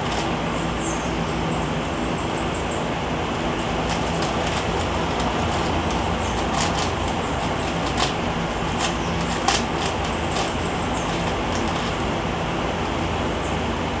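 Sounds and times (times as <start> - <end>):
rumbling background noise: 0.0 - 14.0
puzzle cube plastic clicks: 3.8 - 11.9.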